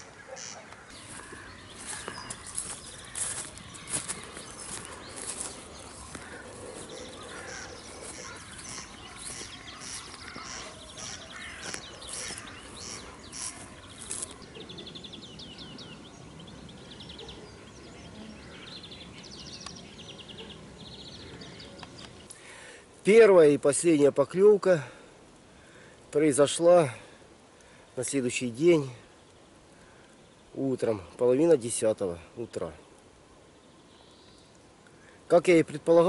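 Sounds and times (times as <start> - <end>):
rapid bird trills: 0.0 - 16.1
birds chirping: 0.0 - 36.0.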